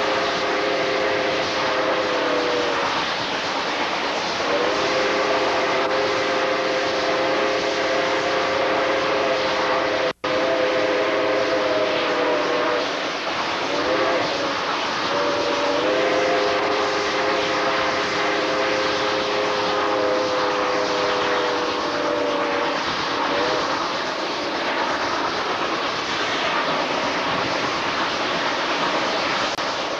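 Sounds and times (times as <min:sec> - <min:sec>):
steam locomotive whistle: 0:00.0 - 0:03.1, 0:04.3 - 0:25.0
moving train noise: 0:00.0 - 0:29.9.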